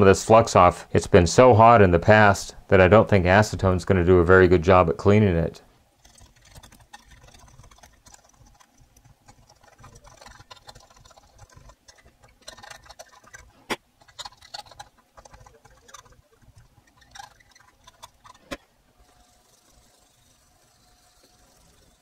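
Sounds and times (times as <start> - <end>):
screwdriver scraping circuit board: 6.0 - 22.0.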